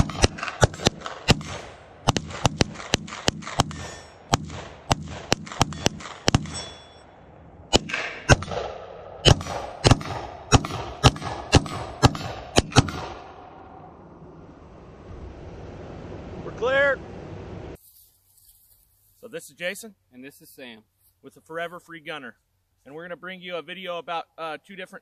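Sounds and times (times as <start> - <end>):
rapid gunfire single shots: 0.0 - 7.0, 7.7 - 13.5.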